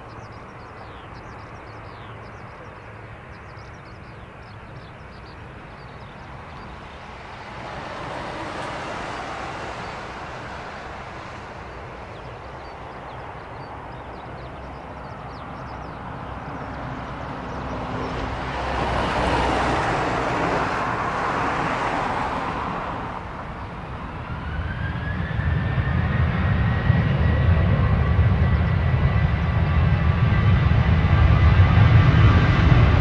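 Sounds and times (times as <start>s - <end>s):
jet engines running: 0.0s - 33.0s
engines spooling up whine: 23.8s - 28.6s.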